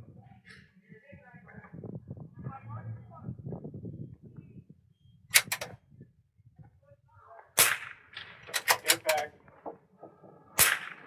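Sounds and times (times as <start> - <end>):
rifle bolt clicks: 5.3 - 5.8
rifle shot: 7.6 - 9.0, 10.6 - 11.0.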